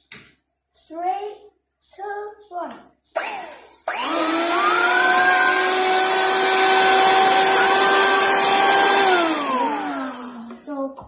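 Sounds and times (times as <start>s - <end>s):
electric hand mixer whining: 3.2s - 10.6s.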